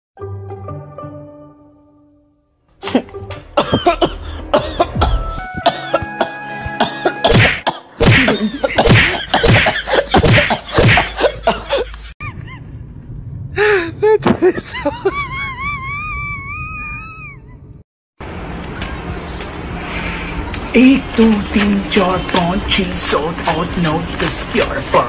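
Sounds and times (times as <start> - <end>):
music: 0.2 - 8.4.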